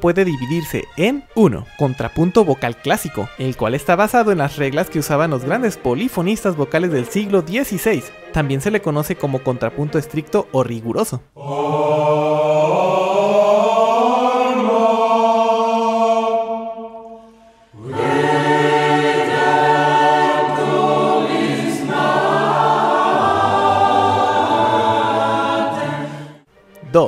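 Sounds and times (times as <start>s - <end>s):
choir singing polyphony: 11.4s - 26.5s.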